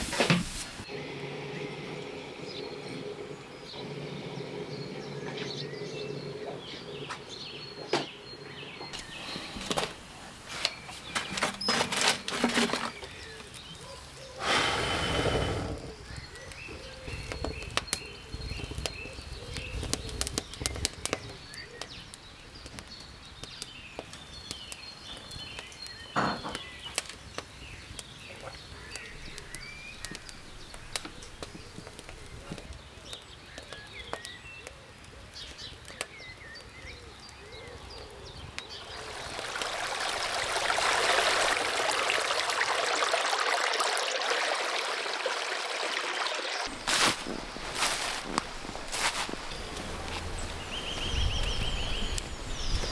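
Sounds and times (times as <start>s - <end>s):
small birds chirping: 0.9s - 52.9s
faint clicks and crackles: 26.6s - 39.0s
stream flowing over stones: 38.6s - 51.2s.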